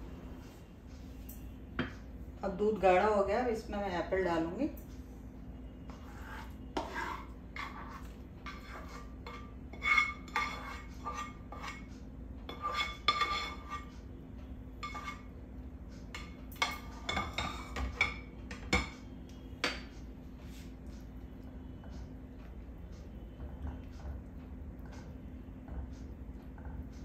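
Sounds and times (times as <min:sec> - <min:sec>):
metal spoon scraping a metal pan: 0:05.9 - 0:14.0, 0:14.8 - 0:15.3.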